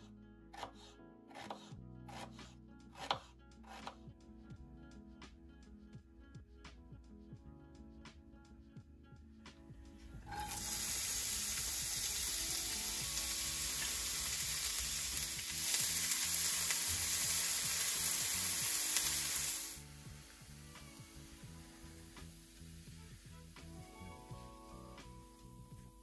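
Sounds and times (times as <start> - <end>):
onion sizzling in oil: 10.2 - 24.1.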